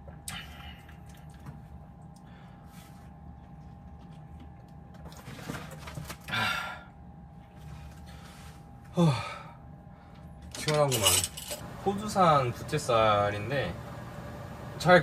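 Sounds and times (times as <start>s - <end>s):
man sighing ahh: 8.9s - 9.6s.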